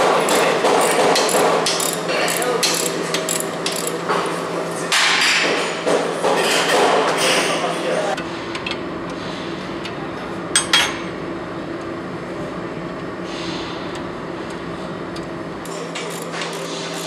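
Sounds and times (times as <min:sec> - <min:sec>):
steady background hum: 0:00.0 - 0:17.0
wrench clicking: 0:00.3 - 0:04.0, 0:15.6 - 0:17.0.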